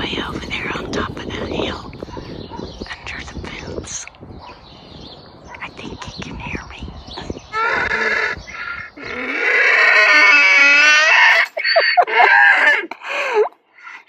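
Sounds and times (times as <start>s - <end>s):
donkeys braying: 7.5s - 14.0s.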